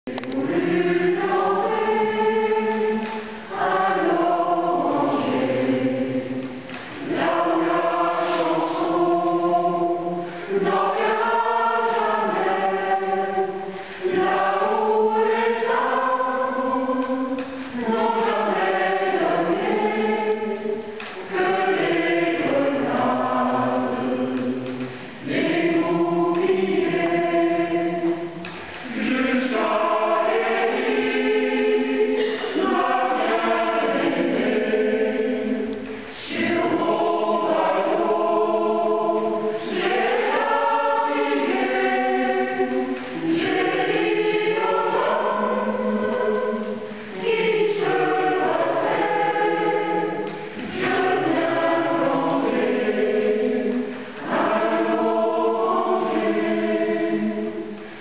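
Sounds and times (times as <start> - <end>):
mixed choir singing: 0.1 - 58.0.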